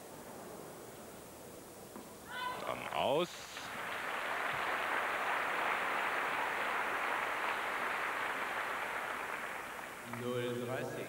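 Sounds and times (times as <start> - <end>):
crowd applauding: 2.7 - 11.0.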